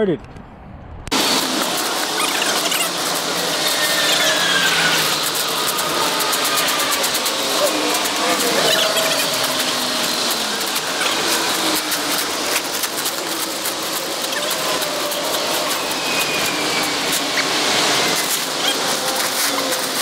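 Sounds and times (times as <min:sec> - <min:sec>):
plastic wrap crinkling: 0:01.7 - 0:17.6.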